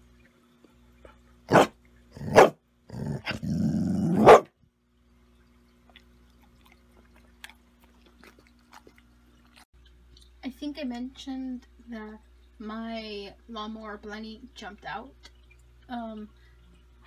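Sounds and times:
dog barking: 0:01.5 - 0:02.6, 0:04.1 - 0:04.5
dog growling: 0:01.5 - 0:04.4.

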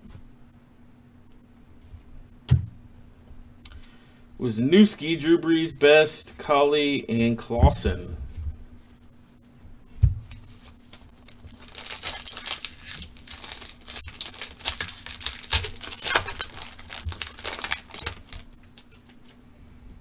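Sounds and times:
thump: 0:02.5 - 0:02.8, 0:10.0 - 0:10.4
foil pack tearing and crinkling: 0:11.2 - 0:19.0.

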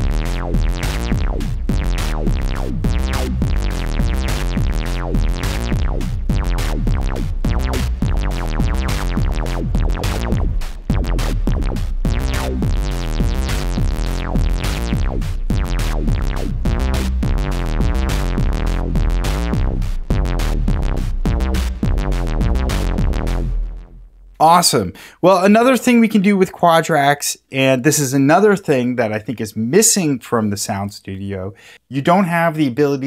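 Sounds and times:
funky synthesizer bass sequence: 0:00.0 - 0:24.5.

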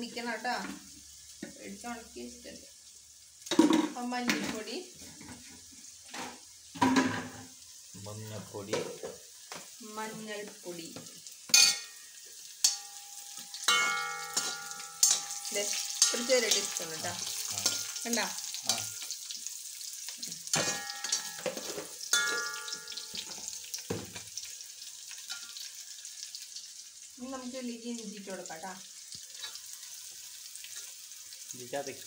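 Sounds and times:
onions sizzling in pan: 0:00.0 - 0:32.0
metal pan ringing: 0:11.5 - 0:19.2, 0:20.5 - 0:23.7
spatula scraping and knocking pan: 0:12.6 - 0:18.1, 0:20.2 - 0:24.3.

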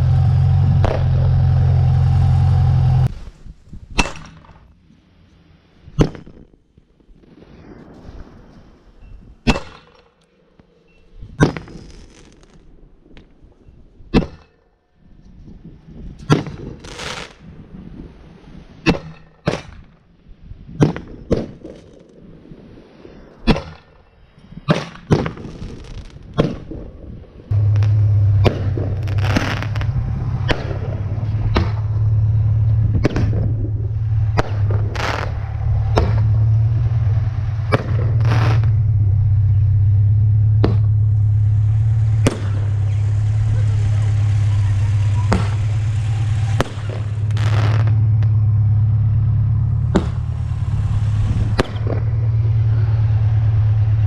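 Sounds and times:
loud steady low hum: 0:00.0 - 0:03.2, 0:27.5 - 0:54.0
fireworks sharp pops: 0:00.8 - 0:01.4, 0:05.9 - 0:08.8, 0:09.4 - 0:14.6, 0:16.2 - 0:17.6, 0:18.8 - 0:20.0, 0:20.7 - 0:22.2, 0:24.7 - 0:39.0, 0:40.6 - 0:48.4, 0:49.7 - 0:52.3.

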